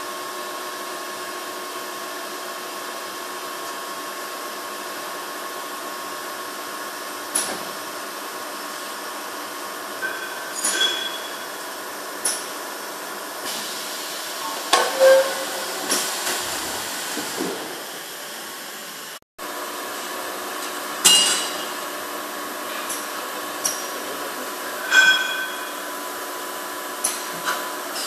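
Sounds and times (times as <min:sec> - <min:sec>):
steady machine hum: 0:01.6 - 0:27.2
sharp metallic clanks: 0:10.0 - 0:11.4, 0:24.8 - 0:25.8.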